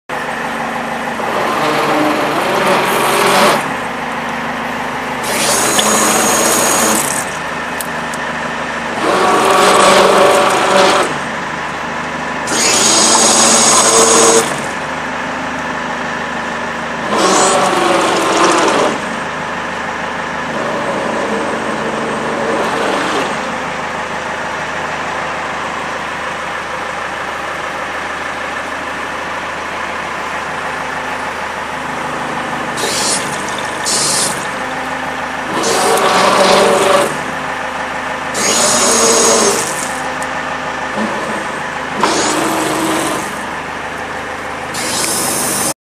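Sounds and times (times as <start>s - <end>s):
engine idling: 0.1s - 45.7s
winch running: 0.2s - 11.8s, 12.4s - 15.0s, 17.0s - 19.2s, 31.2s - 45.8s.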